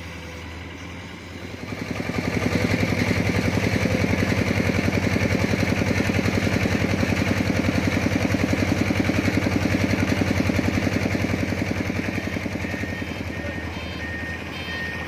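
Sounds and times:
engine idling with chugging beat: 1.6s - 15.0s.

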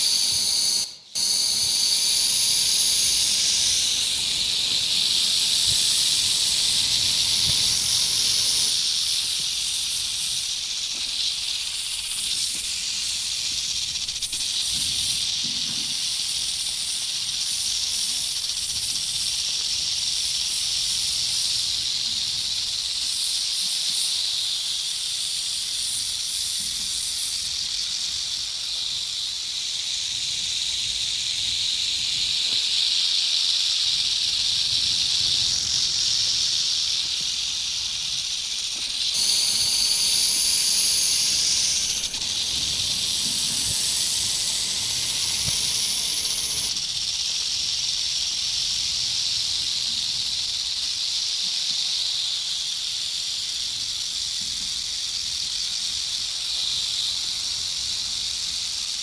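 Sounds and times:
higher sharper hiss: 0.0s - 59.0s
snake hissing: 0.0s - 59.0s.

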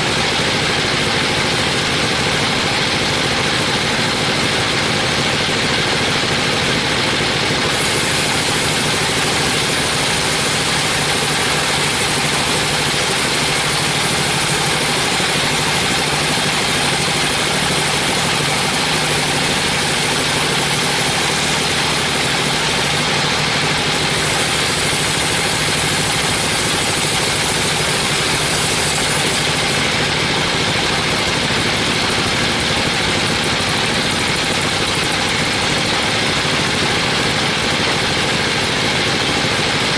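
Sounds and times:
band saw cutting wood: 0.0s - 39.9s.

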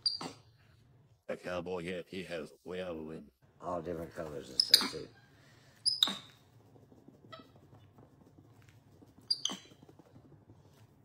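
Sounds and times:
monkey squeaky chirps: 0.0s - 0.4s, 4.6s - 5.0s, 5.8s - 6.4s, 9.2s - 9.8s.

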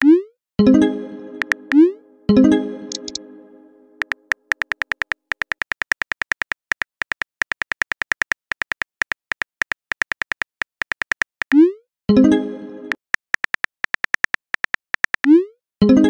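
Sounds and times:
phone keyboard clicks: 1.4s - 1.8s, 2.9s - 3.2s, 4.0s - 11.6s, 13.2s - 15.3s.

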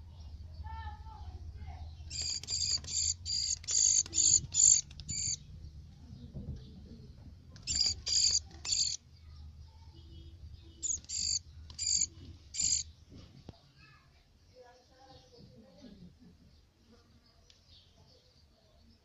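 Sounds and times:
small bird high calls: 1.8s - 6.3s, 7.5s - 14.0s.

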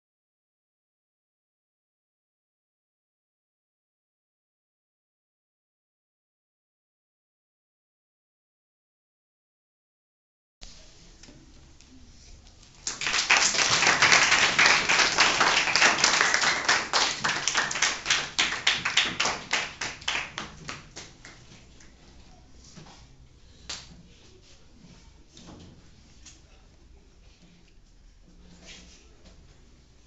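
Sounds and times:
children applauding: 12.8s - 21.3s.

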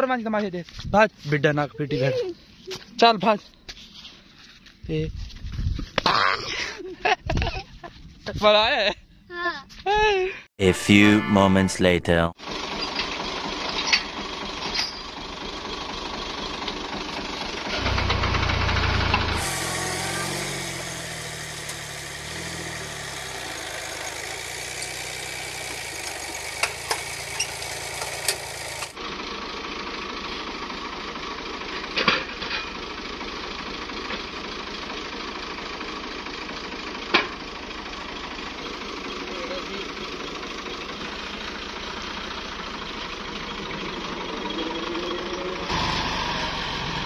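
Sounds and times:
tractor diesel engine running: 12.1s - 47.0s.

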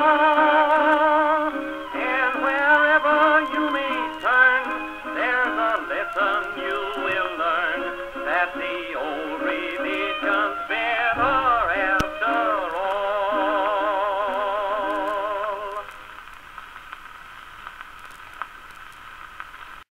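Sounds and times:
guitar: 0.0s - 16.0s
record crackles: 0.0s - 19.9s
record surface hiss: 0.0s - 19.9s
violin with wide vibrato: 4.8s - 13.6s.

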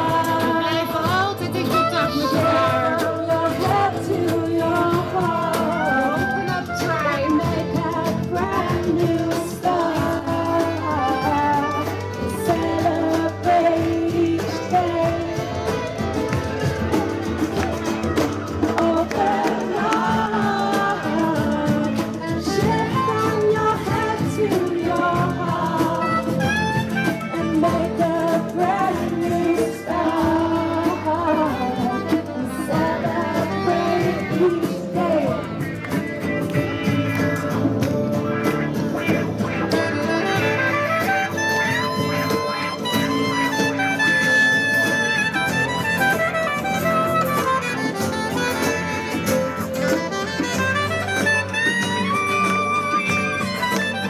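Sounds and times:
woman singing: 0.0s - 15.9s, 18.6s - 35.8s
hand drums: 0.0s - 54.0s
strummed acoustic guitars: 0.0s - 54.0s
trumpet: 1.5s - 3.2s, 5.6s - 7.7s.

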